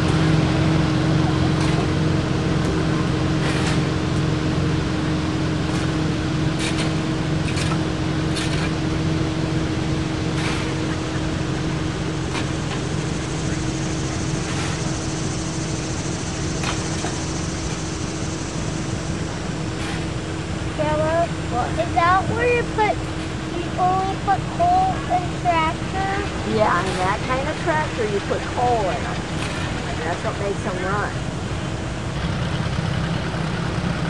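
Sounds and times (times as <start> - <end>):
steady mechanical hum: 0.0 - 34.0
shovel scraping coal: 3.4 - 4.0, 6.6 - 8.8, 10.3 - 10.9, 14.4 - 14.9, 19.6 - 20.2.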